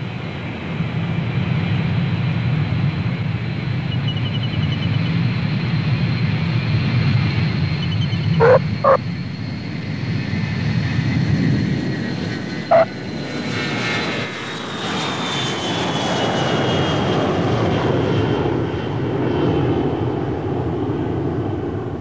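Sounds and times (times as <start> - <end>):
jet aircraft landing rumble: 5.0 - 22.0
brief sharp calls: 8.4 - 9.0.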